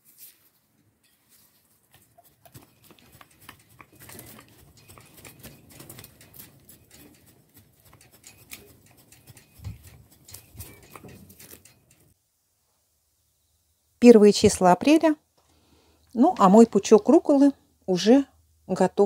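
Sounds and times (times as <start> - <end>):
hand hoe scraping dry mulch: 0.0 - 11.9.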